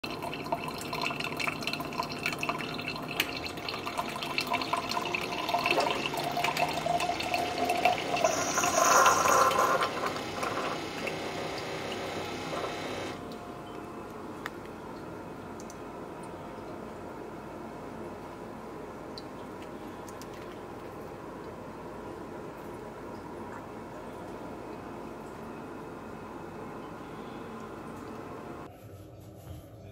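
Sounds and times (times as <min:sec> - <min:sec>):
coffee pouring into glass jar: 0:00.0 - 0:13.2
coffee maker brewing: 0:00.0 - 0:28.7.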